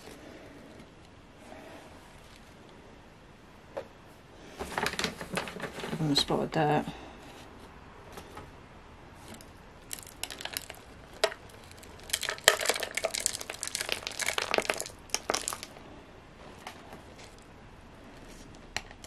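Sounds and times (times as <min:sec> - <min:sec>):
soil crackling in plastic cup: 0:09.2 - 0:15.8.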